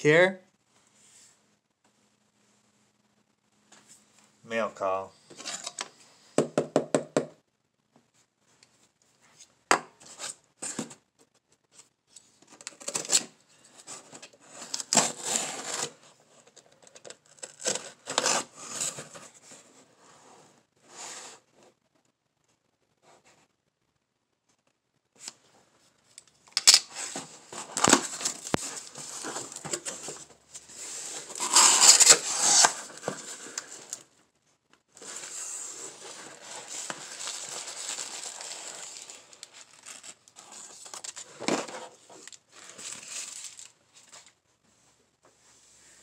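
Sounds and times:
packing tape tearing: 14.6 - 16.0, 16.8 - 19.0, 26.5 - 30.0, 31.2 - 34.0
plastic packing crinkling: 35.0 - 41.5.

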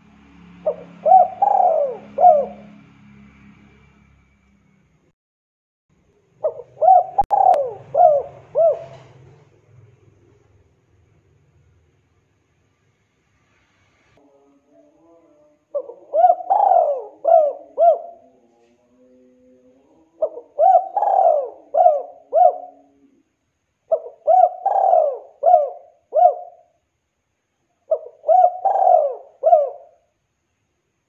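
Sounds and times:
dove cooing: 0.6 - 2.8, 6.4 - 9.5, 15.7 - 23.3, 23.9 - 26.8, 27.8 - 30.1.

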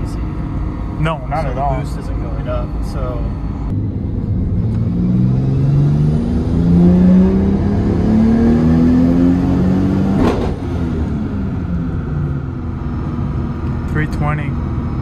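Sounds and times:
car engine revving under load: 0.0 - 13.9
sharp crack: 10.2 - 10.7.

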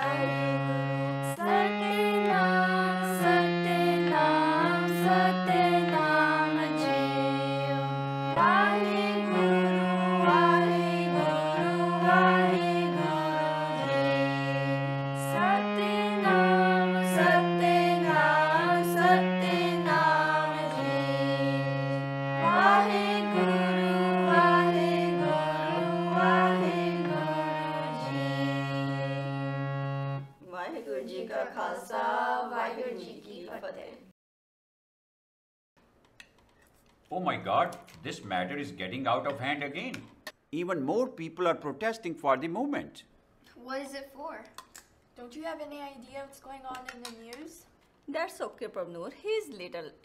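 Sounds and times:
people singing a hymn: 0.0 - 30.1, 31.1 - 33.2
harmonium: 0.0 - 30.4.

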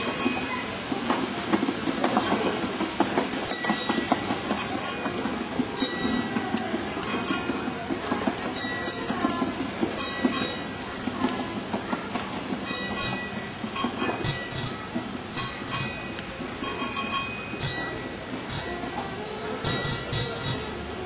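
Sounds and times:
bicycle bells ringing: 0.0 - 0.7, 2.2 - 2.8, 3.4 - 7.8, 8.5 - 11.0, 12.6 - 21.0.

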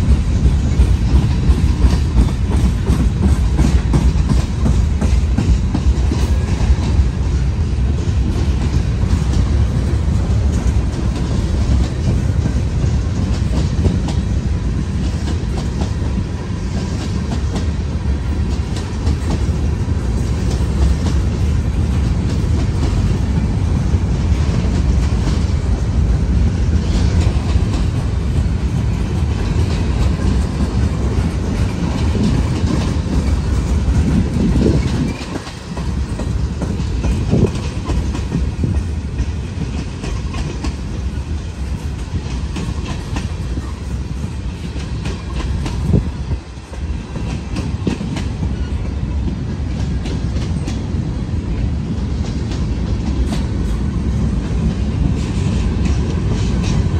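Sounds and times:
freight train rumbling past: 0.0 - 56.9
wheels clacking over rail joints: 0.0 - 56.9.

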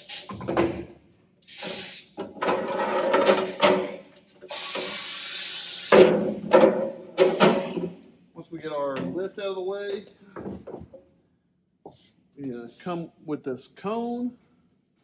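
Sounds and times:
air hissing: 0.0 - 0.5, 1.4 - 2.2, 4.3 - 6.2
rubber and metal scraping: 2.4 - 4.0.

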